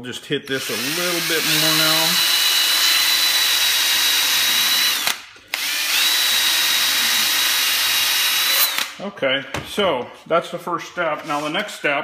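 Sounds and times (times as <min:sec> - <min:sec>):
drill high whine: 0:00.5 - 0:08.9.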